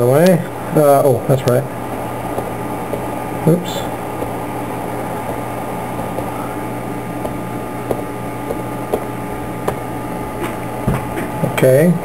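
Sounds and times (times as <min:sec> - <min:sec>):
mechanical hum: 0:00.0 - 0:12.0.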